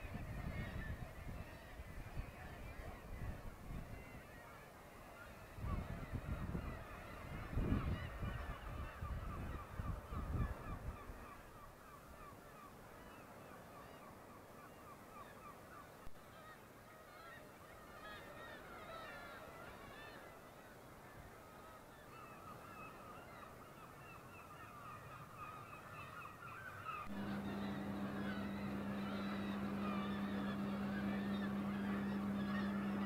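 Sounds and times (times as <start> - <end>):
gulls calling: 0.0 - 33.0
steady mechanical hum: 27.0 - 33.0.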